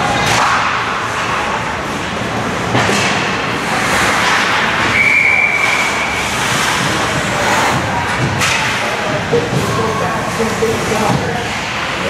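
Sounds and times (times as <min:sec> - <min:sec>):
skates on ice: 0:02.8 - 0:12.0.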